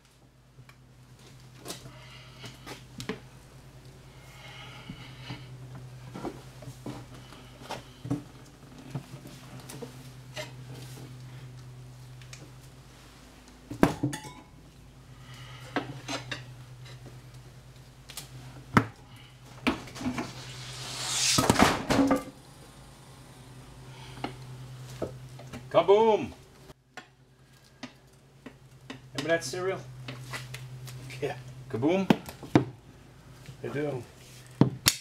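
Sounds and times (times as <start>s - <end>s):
steady low hum: 0.0s - 34.6s
rising hiss: 19.7s - 24.8s.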